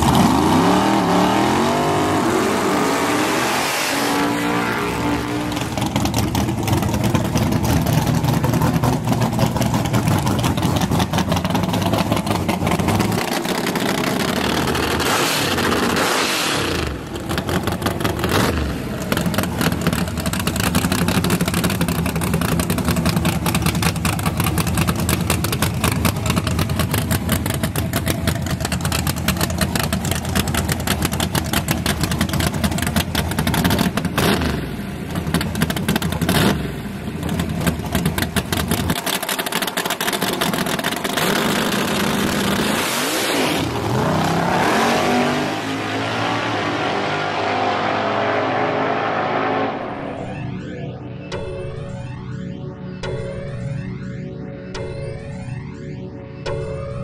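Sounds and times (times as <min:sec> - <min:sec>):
truck engine revving: 0:00.0 - 0:50.7
engine choppy idle: 0:05.4 - 0:16.0, 0:16.8 - 0:42.6.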